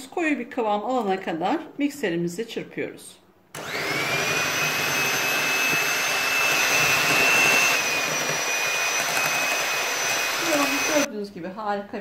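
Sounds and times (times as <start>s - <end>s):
electric hand mixer whining: 3.6s - 11.1s.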